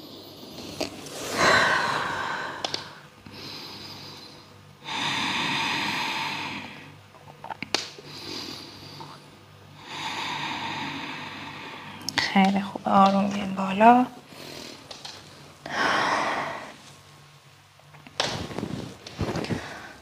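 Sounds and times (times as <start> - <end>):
person breathing deeply: 0.0 - 7.0, 8.0 - 12.1, 15.6 - 16.9, 19.4 - 20.0.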